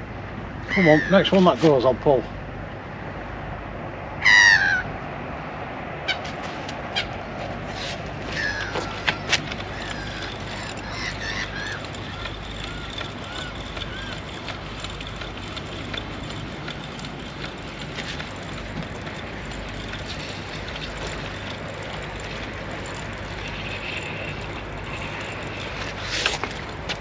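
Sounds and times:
outdoor background noise: 0.0s - 27.0s.

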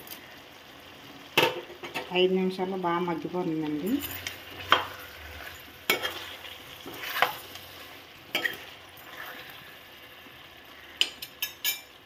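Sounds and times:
vegetables sizzling in oil: 0.0s - 12.0s
spoon scraping a metal pan: 4.0s - 9.7s.

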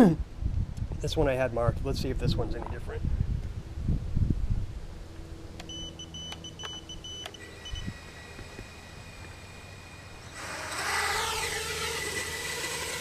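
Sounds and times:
drone motors whining: 5.5s - 13.0s.

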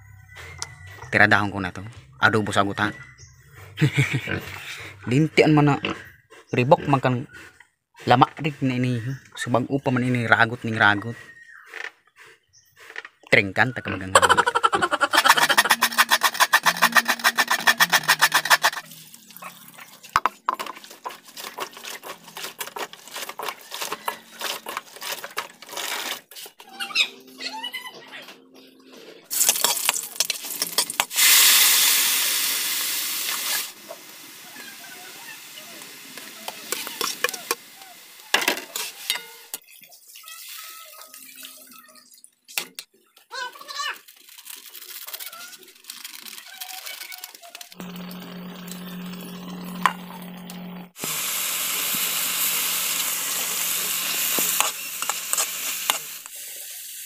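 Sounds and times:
hands rubbing in basin of water: 15.1s - 20.1s.

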